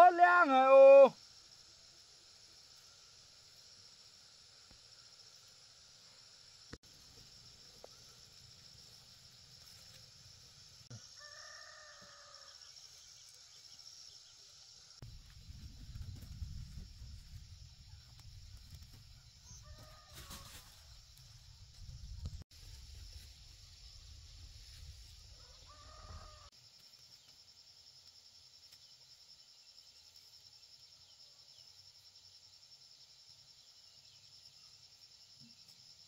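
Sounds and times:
rooster crowing faintly: 10.9 - 12.6, 19.1 - 21.1, 25.3 - 26.5.

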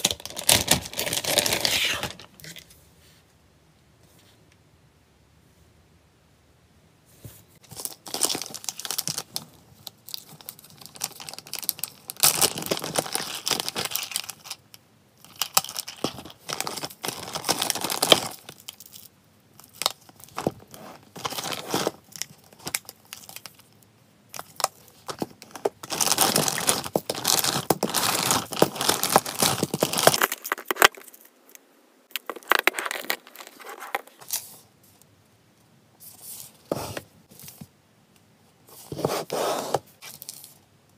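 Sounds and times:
plastic packaging crinkling and tearing: 0.0 - 2.6, 7.7 - 31.3, 32.1 - 34.6.

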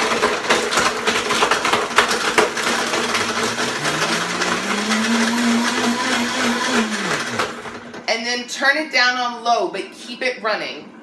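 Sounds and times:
ice clattering in blender jar: 0.0 - 7.9
blender motor running: 0.0 - 8.1.

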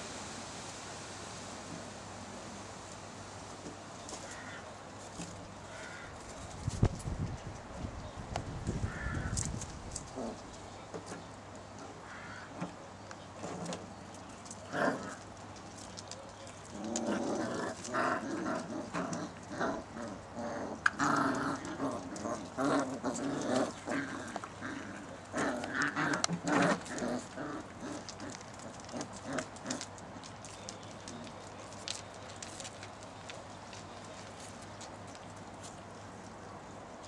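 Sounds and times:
puppies growling and yelping: 16.7 - 30.2.

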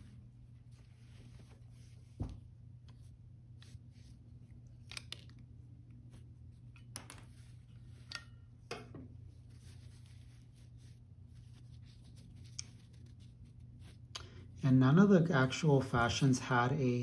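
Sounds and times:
steady low hum: 0.0 - 17.0
doll handling clicks and rustles: 2.8 - 10.3.

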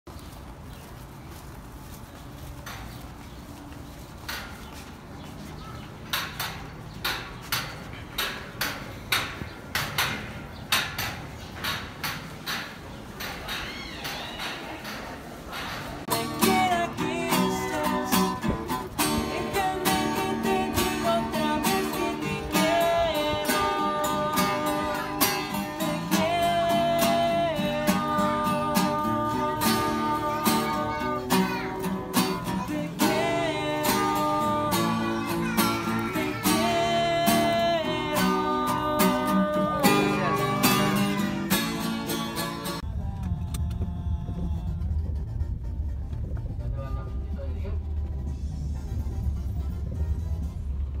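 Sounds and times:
acoustic guitars strummed: 15.9 - 47.3
man singing: 16.1 - 45.1
low rumble: 42.8 - 51.0.

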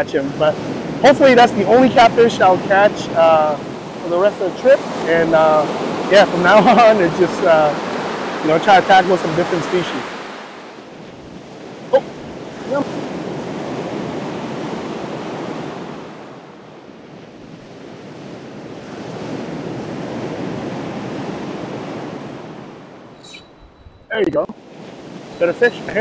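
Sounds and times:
surf breaking on beach: 0.6 - 16.6
wind buffeting microphone: 10.5 - 26.0.

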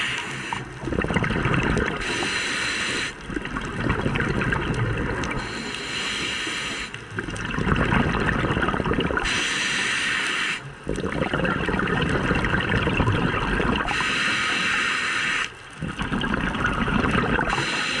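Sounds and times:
regulator hissing inhale: 0.0 - 0.8, 2.0 - 3.3, 5.4 - 7.0, 9.2 - 10.7, 13.9 - 15.6, 17.5 - 18.0
exhaled bubbles rumbling: 0.0 - 5.8, 6.8 - 9.4, 10.7 - 14.1, 15.6 - 18.0.

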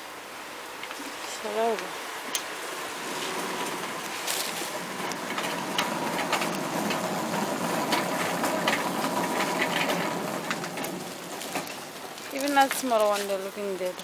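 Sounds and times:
cart wheels rumbling on tiles: 2.7 - 14.0
wire basket rattling: 3.4 - 14.0.

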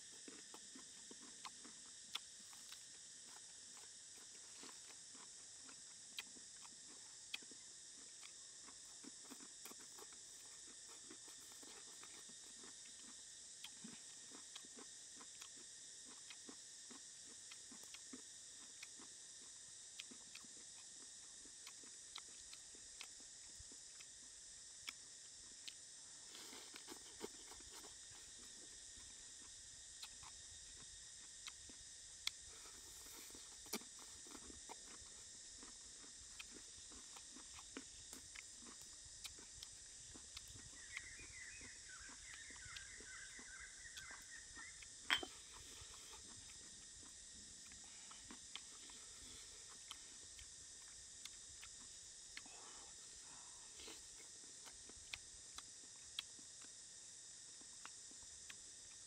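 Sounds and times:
person chewing crunchy vegetables: 0.0 - 59.0.

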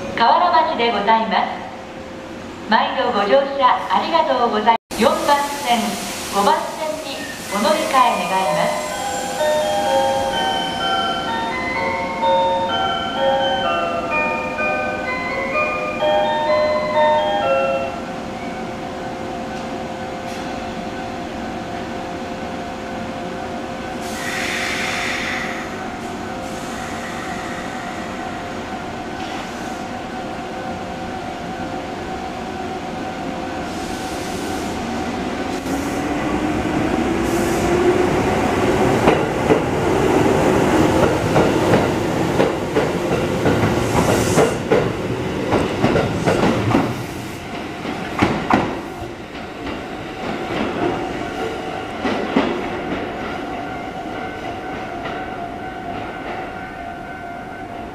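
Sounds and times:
air hiss: 5.1 - 9.4, 24.0 - 25.8, 26.4 - 28.2, 33.6 - 34.9.

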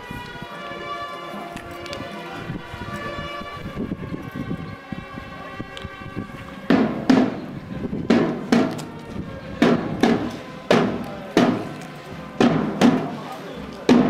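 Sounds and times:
slow drum beats: 6.6 - 14.0.

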